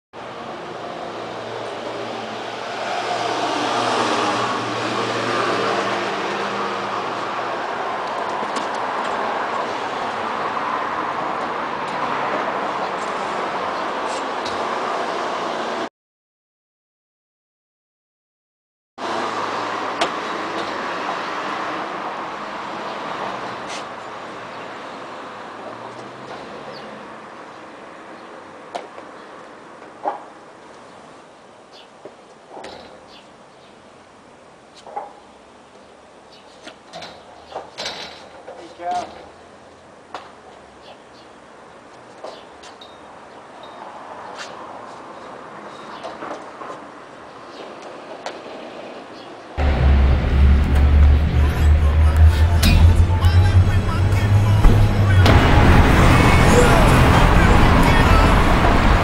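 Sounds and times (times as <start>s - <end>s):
street traffic noise: 0.2s - 15.9s, 19.0s - 59.0s
vehicle engine running: 49.6s - 59.0s
sharp knocks: 52.2s - 56.0s.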